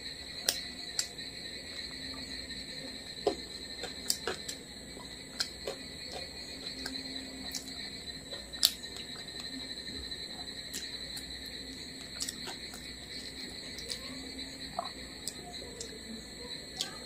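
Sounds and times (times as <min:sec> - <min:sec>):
high-pitched whine: 0:00.0 - 0:17.0
fingers mixing rice: 0:01.9 - 0:15.4.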